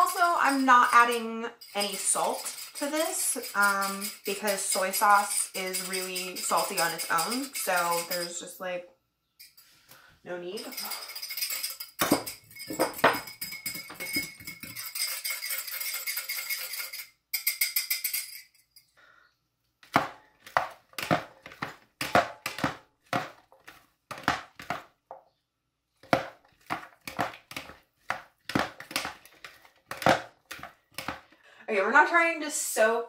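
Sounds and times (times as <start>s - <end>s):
utensil scraping in a bowl: 0.0s - 8.6s, 12.8s - 17.1s.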